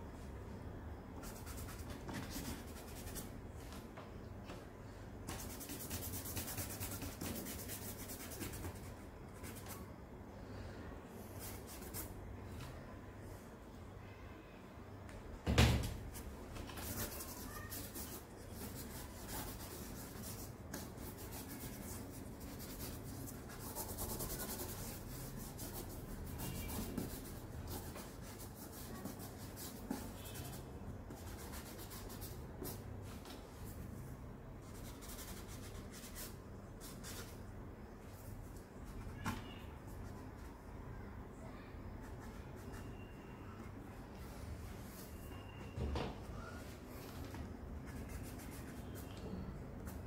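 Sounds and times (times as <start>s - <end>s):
charcoal scratching on paper: 5.3s - 9.8s, 16.7s - 32.8s, 34.6s - 37.4s, 47.9s - 49.2s.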